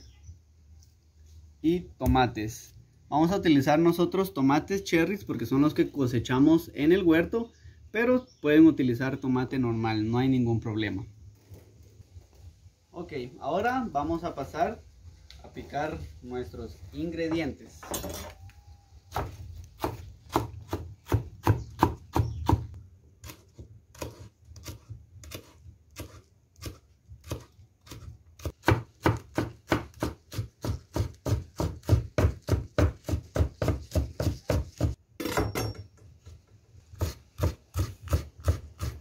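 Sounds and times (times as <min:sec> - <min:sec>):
knife chopping on wooden board: 0:19.1 - 0:35.7, 0:37.0 - 0:39.0.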